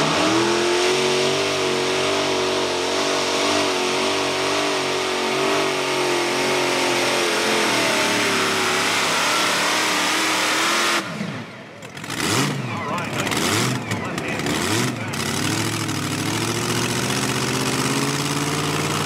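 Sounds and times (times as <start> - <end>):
tractor engines at full throttle: 0.0 - 19.0.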